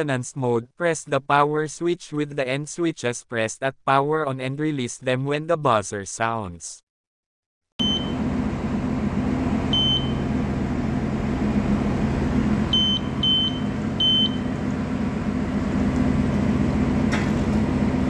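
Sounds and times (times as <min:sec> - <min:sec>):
low mechanical hum: 0:07.8 - 0:18.0
short high buzzer beeps: 0:12.7 - 0:14.5.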